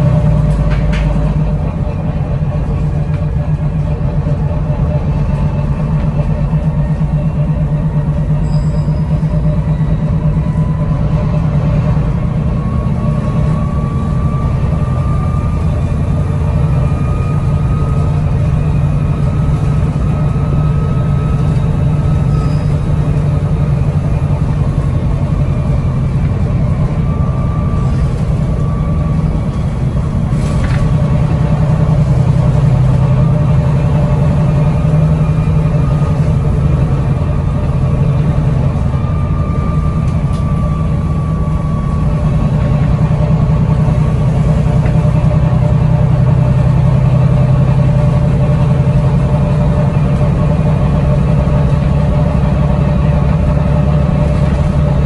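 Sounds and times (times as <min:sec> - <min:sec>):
bus engine drone: 0:00.0 - 0:55.0
faint engine whine: 0:00.0 - 0:55.0
click: 0:40.1 - 0:40.5.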